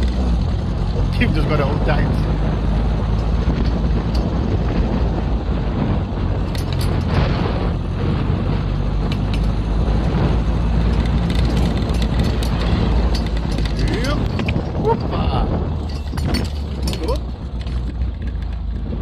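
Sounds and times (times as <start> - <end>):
buggy engine running: 0.0 - 19.0
sharp knocks or rattles: 2.0 - 19.0.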